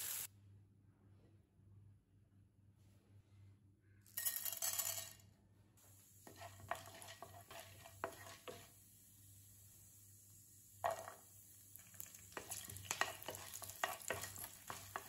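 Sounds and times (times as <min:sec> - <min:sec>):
grains pouring into hot oil: 0:00.0 - 0:00.3, 0:06.0 - 0:15.0
oil sizzling: 0:00.0 - 0:00.3, 0:05.8 - 0:15.0
spatula scraping and tapping pan: 0:06.2 - 0:08.8, 0:10.8 - 0:15.0.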